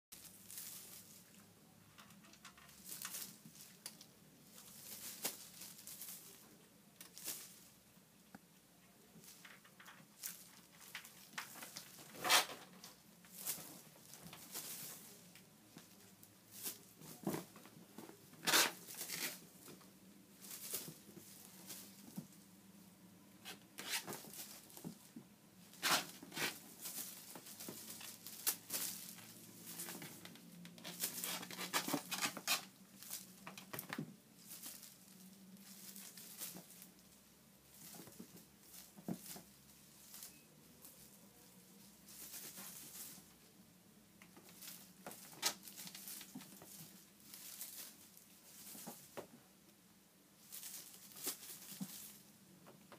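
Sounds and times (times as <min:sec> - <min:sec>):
kitten paws rustling on fabric: 0:02.8 - 0:07.8, 0:13.3 - 0:22.4, 0:23.8 - 0:41.1, 0:41.8 - 0:43.5, 0:44.3 - 0:49.4, 0:50.4 - 0:52.5.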